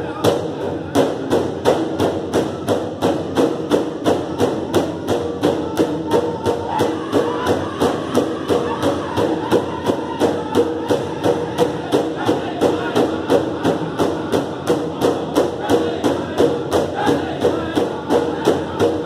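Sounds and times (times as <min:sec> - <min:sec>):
big drum beating: 0:00.1 - 0:19.0
voices singing held notes: 0:04.2 - 0:19.0.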